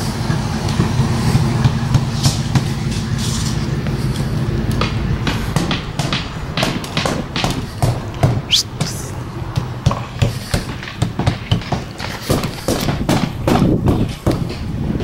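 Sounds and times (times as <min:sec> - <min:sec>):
knocks and thumps on a wall: 0:09.5 - 0:14.7.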